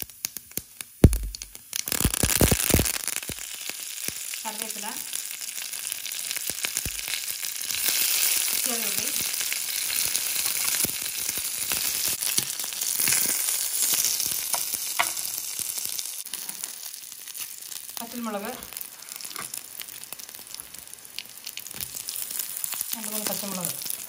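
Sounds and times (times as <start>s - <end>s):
oil sizzling in a pan: 0.0s - 24.0s
mustard seeds popping: 1.0s - 3.6s.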